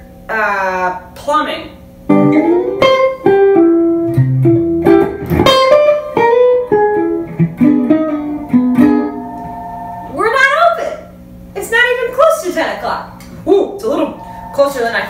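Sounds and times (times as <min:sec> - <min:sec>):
electric guitar picked notes: 0:02.1 - 0:10.2, 0:14.0 - 0:15.0.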